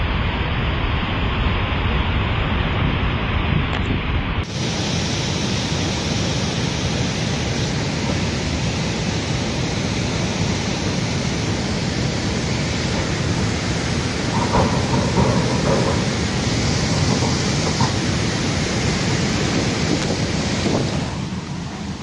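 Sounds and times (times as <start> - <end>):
flooded river rushing: 4.4 - 22.0.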